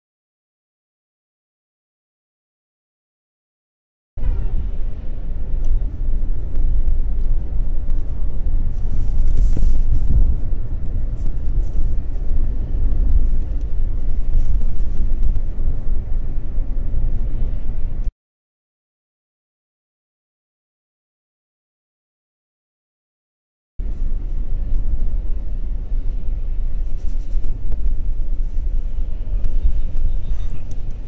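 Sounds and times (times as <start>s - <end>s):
diesel engine rumble in car cabin: 4.2s - 18.1s, 23.8s - 31.0s
tyres on the road: 4.2s - 18.1s, 23.8s - 31.0s.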